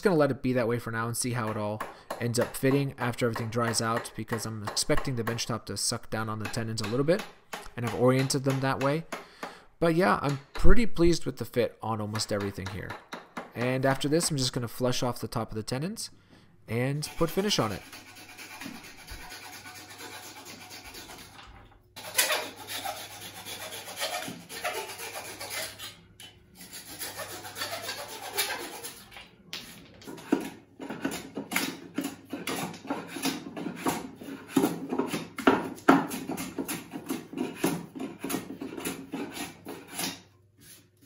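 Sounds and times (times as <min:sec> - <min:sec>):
hand plane shaving wood: 0:17.1 - 0:21.4, 0:22.0 - 0:25.9, 0:26.6 - 0:29.1, 0:30.2 - 0:40.8.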